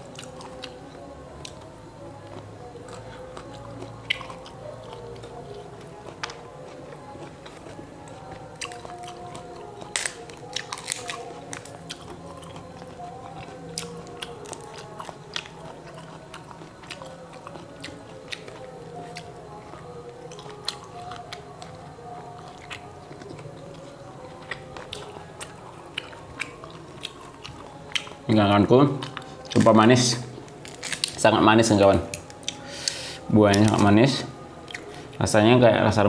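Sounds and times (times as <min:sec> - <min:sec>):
chewing: 0:00.0 - 0:35.4
fruit shells cracking: 0:07.7 - 0:17.7, 0:30.4 - 0:33.9.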